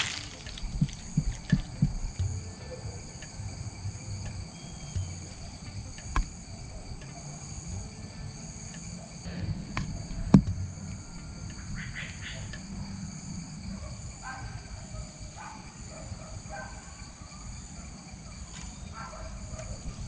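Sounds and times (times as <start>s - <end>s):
insects trilling: 0.0s - 20.0s
sharp knocks: 9.4s - 10.8s.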